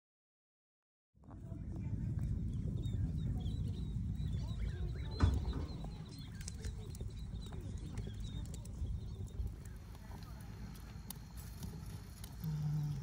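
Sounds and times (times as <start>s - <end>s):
wind rumble on microphone: 1.2s - 13.0s
faint bird chirps: 2.5s - 11.1s.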